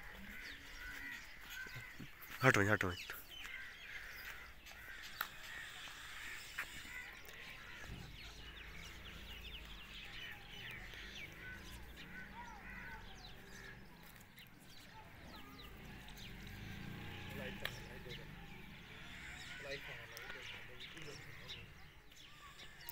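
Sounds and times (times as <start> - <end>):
birds chirping: 0.0 - 22.9
lower bird calls: 0.0 - 22.9.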